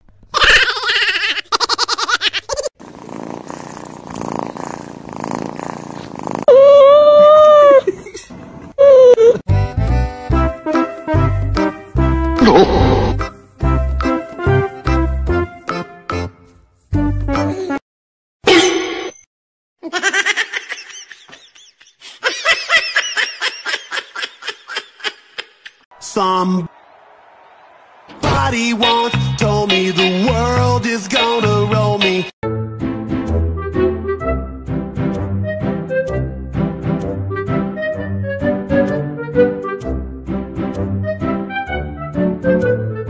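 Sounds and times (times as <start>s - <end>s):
high-pitched laughter: 0.3s - 2.7s, 19.8s - 25.8s
cat purring: 2.8s - 6.5s.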